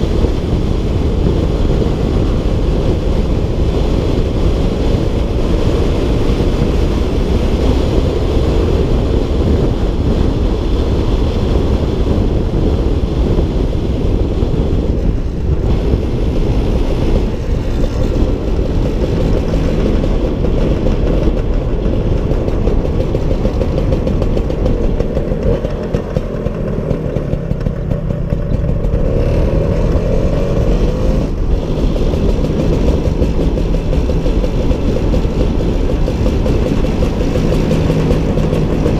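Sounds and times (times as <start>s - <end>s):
scooter engine running: 0.0s - 38.9s
wind rush on microphone: 0.0s - 38.9s.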